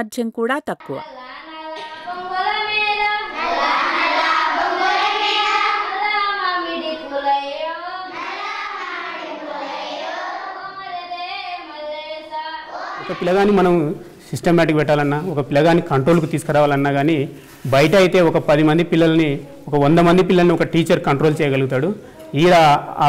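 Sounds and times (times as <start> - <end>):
children singing in unison: 1.1 - 13.9.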